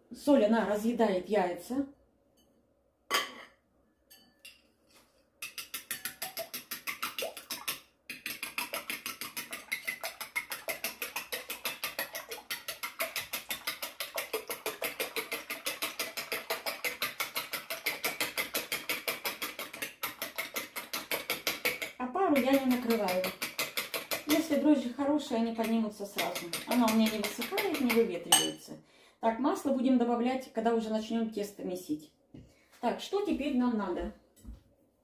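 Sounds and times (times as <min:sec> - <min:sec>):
fork clicking against bowl: 0:05.4 - 0:24.4.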